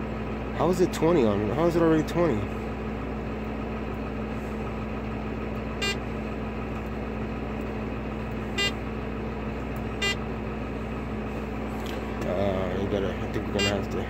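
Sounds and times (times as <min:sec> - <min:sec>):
tractor diesel engine running: 0:00.0 - 0:14.0
short electronic beeps: 0:05.8 - 0:06.0, 0:08.6 - 0:08.8, 0:10.0 - 0:10.2, 0:13.6 - 0:13.8.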